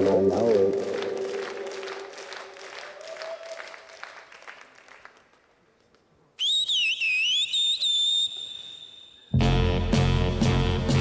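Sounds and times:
applause: 0:00.0 - 0:06.0
woman whistling: 0:06.4 - 0:09.3
music: 0:09.3 - 0:11.0.

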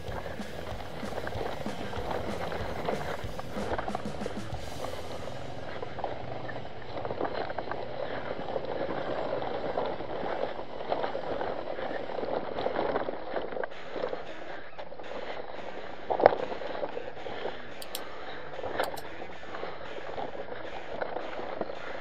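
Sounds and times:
motorcycle engine running: 0:00.0 - 0:08.5.

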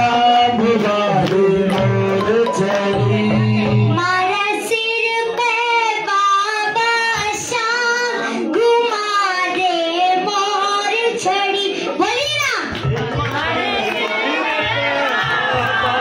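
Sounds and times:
instrumental accompaniment: 0:00.0 - 0:05.7
girl singing into a microphone: 0:03.8 - 0:12.8.

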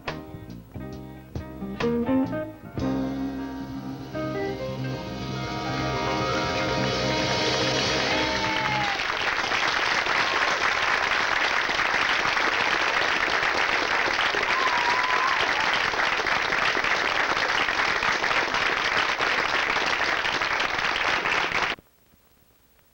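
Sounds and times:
audience applauding: 0:05.6 - 0:21.8.

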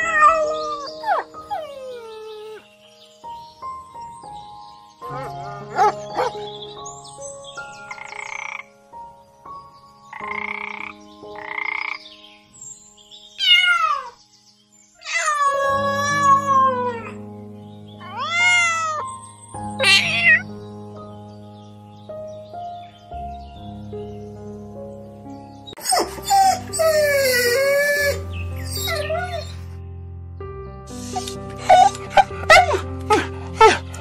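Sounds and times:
background music: 0:00.0 - 0:34.0
toad croaking: 0:07.9 - 0:08.7, 0:10.1 - 0:12.0
kitten meowing: 0:13.4 - 0:14.2, 0:15.0 - 0:17.2, 0:18.0 - 0:19.1, 0:19.8 - 0:20.5.

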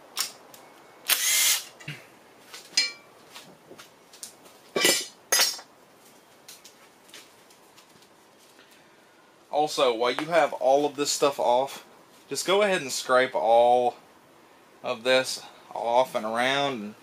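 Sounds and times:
cordless drill spinning bolts: 0:01.1 - 0:01.8.

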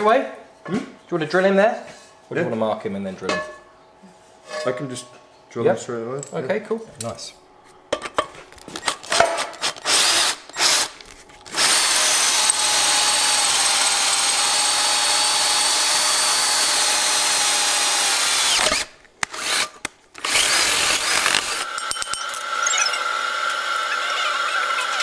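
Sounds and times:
power drill boring through iron: 0:09.6 - 0:25.0.

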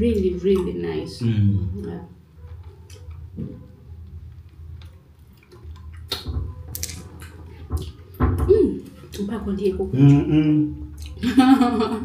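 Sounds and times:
low steady hum: 0:00.0 - 0:12.0
wet squishes of fruit eating: 0:04.1 - 0:08.0.

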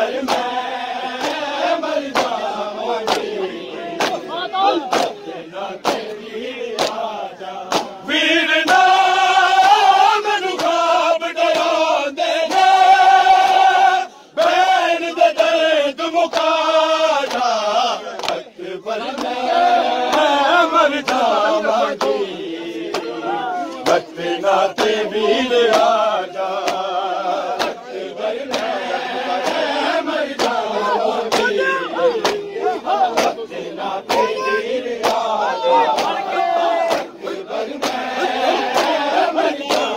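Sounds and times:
men chanting together: 0:00.0 - 0:39.9
hands slapping chests: 0:00.2 - 0:09.0, 0:09.6 - 0:10.8, 0:11.5 - 0:11.8, 0:17.2 - 0:20.4, 0:21.0 - 0:26.9, 0:27.5 - 0:39.9.

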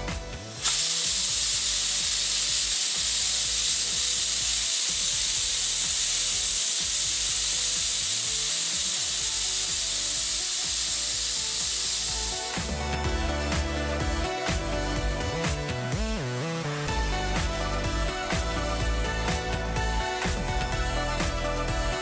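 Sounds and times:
pressure cooker whistling hiss: 0:00.0 - 0:12.9.

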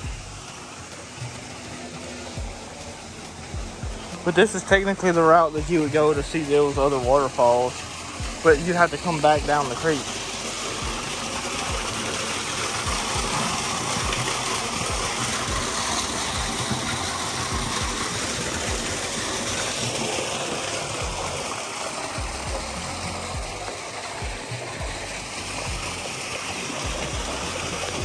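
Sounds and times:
creek water rushing: 0:00.0 - 0:28.0
footsteps thumping: 0:03.6 - 0:04.0.

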